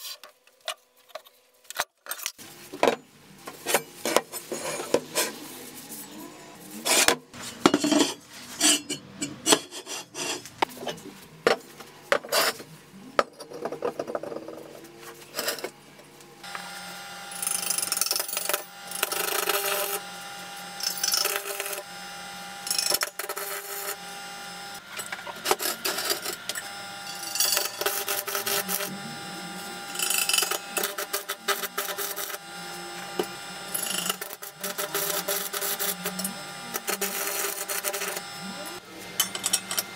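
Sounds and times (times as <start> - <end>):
arc welder humming: 15.0 - 39.9
welding crackle: 16.4 - 38.8
steel parts clanking: 25.0 - 28.9, 39.2 - 39.9.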